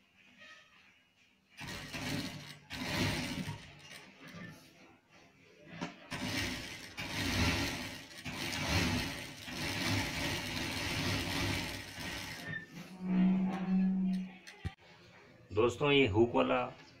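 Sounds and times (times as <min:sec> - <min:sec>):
sewing machine stitching: 0:01.6 - 0:04.7, 0:05.8 - 0:12.9.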